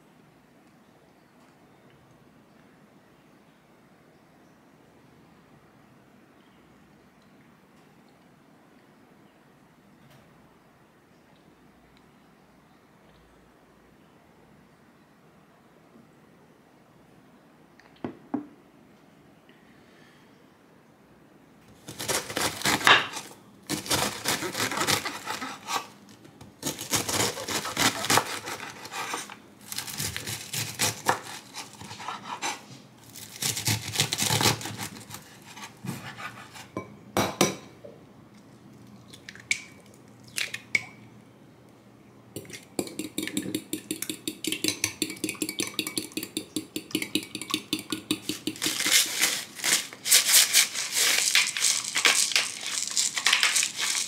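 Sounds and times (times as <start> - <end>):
pepper grinder rasping: 21.8 - 26.0, 26.6 - 36.7, 42.8 - 54.0
egg cracking on glass bowl: 42.4 - 49.0
spoon beating eggs in glass: 42.4 - 49.0.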